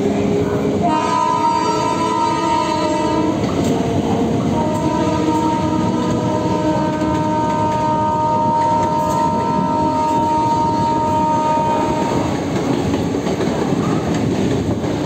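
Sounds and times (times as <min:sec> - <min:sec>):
train rumbling: 0:00.0 - 0:15.0
locomotive horn blasts: 0:00.8 - 0:12.6.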